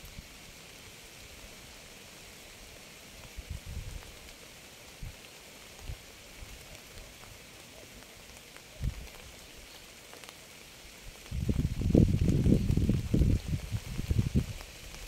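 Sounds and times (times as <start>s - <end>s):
steady rain: 0.0s - 15.0s.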